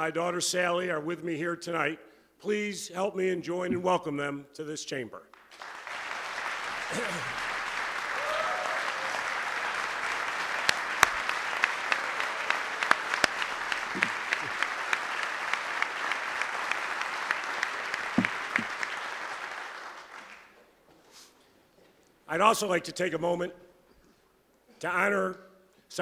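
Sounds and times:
audience applauding: 0:05.4 - 0:20.6
sharp close claps: 0:10.0 - 0:20.5.

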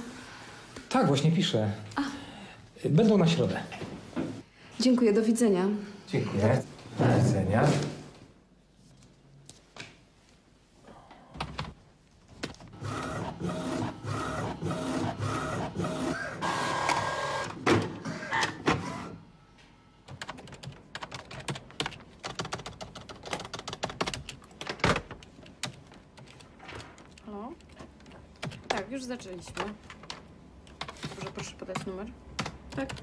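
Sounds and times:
printer running: 0:12.7 - 0:19.2.

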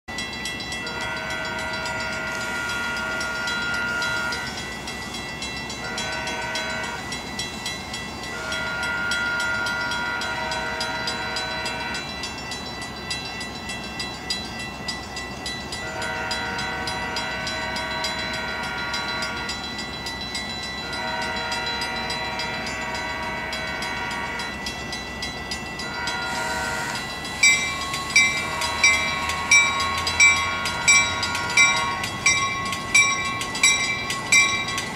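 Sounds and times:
bell ringing: 0:00.1 - 0:34.9
rail noise: 0:00.1 - 0:34.9
train horn blasts: 0:00.7 - 0:04.6, 0:05.8 - 0:07.2, 0:08.2 - 0:12.2, 0:15.8 - 0:19.7, 0:20.8 - 0:24.7, 0:25.8 - 0:33.4.

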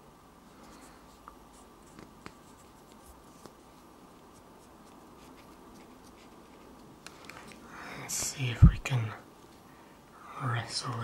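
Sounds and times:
cotton bud scratchy rubbing: 0:00.7 - 0:06.9.

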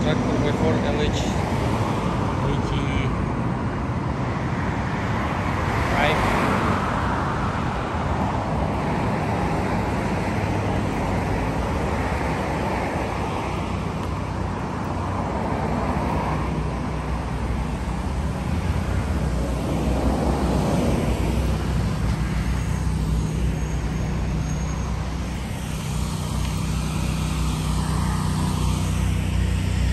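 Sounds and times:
cars passing: 0:00.0 - 0:29.9
steady low engine hum: 0:07.7 - 0:29.9.

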